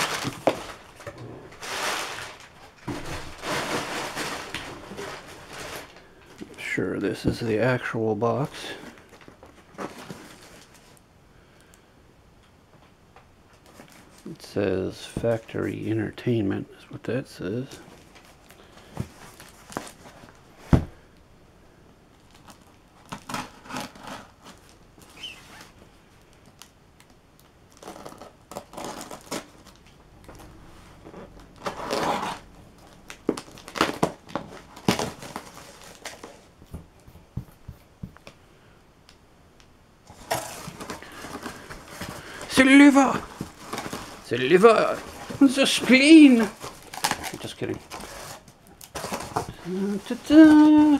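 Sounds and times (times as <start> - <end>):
cardboard flaps rustling: 0.0 - 7.9, 8.7 - 11.0, 17.8 - 21.0, 40.1 - 50.9
packing tape peeling and tearing: 27.7 - 29.9, 31.1 - 36.3, 40.2 - 50.9.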